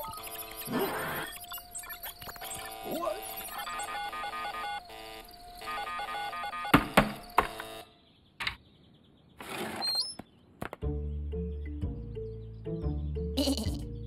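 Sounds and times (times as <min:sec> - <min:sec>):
cartoon computer blips: 0:00.0 - 0:06.8
high chirps: 0:00.0 - 0:08.0
sharp loud knocks: 0:06.7 - 0:07.6.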